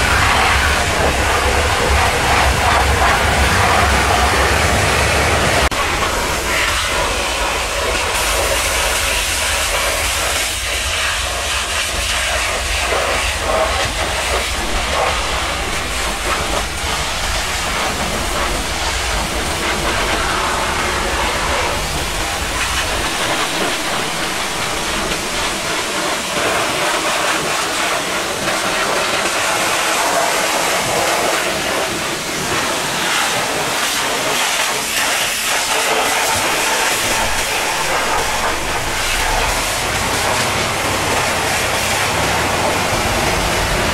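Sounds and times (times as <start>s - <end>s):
pressure washer jet hissing: 0.0s - 27.9s, 32.1s - 43.9s
low hum: 12.6s - 25.9s, 36.2s - 43.9s.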